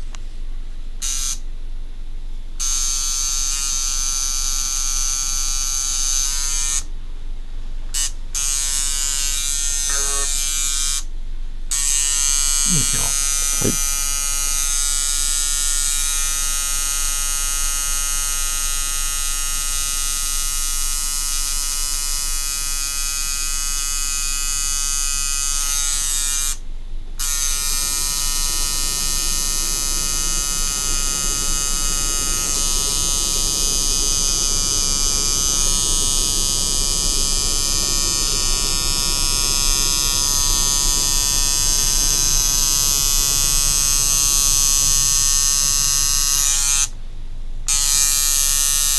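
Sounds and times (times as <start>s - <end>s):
tattoo machine buzzing: 1.0s - 1.4s, 2.6s - 6.9s, 7.9s - 11.1s, 11.7s - 26.6s, 27.2s - 47.0s, 47.7s - 48.9s.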